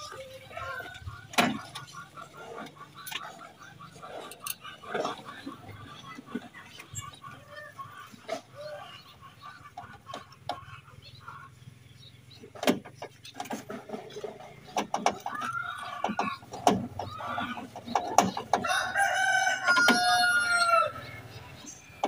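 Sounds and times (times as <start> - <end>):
rooster crowing: 18.6 - 21.1.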